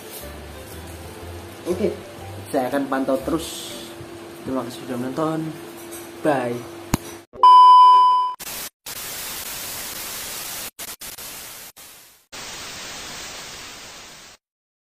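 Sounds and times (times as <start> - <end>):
steady high test tone beep: 7.4 - 8.4
tv static hiss: 8.5 - 14.4.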